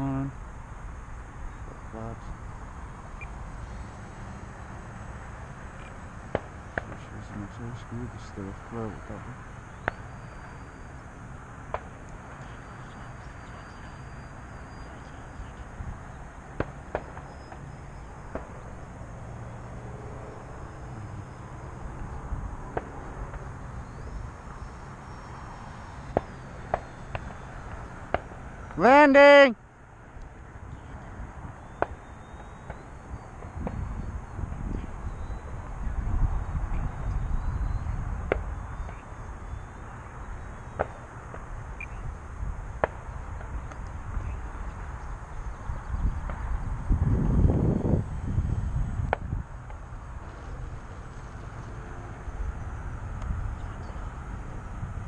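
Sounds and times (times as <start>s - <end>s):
wind buffeting microphone: 21.0s - 24.5s, 33.1s - 39.6s, 41.4s - 51.5s.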